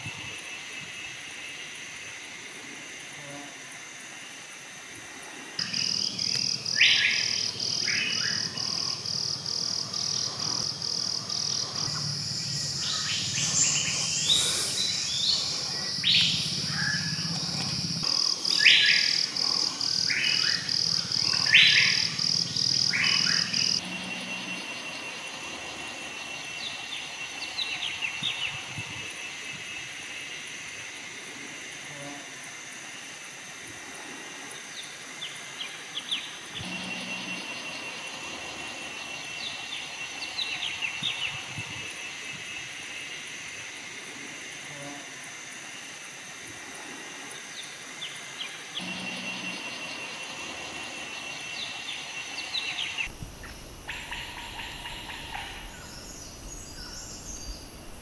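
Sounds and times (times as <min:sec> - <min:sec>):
pulsing high insect call: 0:00.0 - 0:58.0
bird calls: 0:05.6 - 0:25.3, 0:48.4 - 0:58.0.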